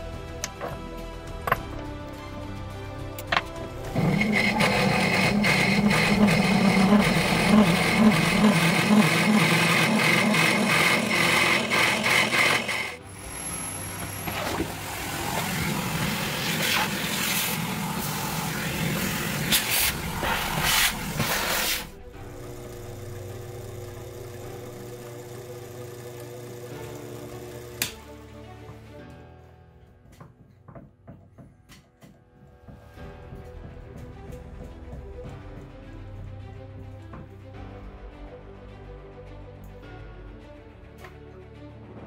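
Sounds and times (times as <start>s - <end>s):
lathe chattering drone: 3.9s - 27.8s.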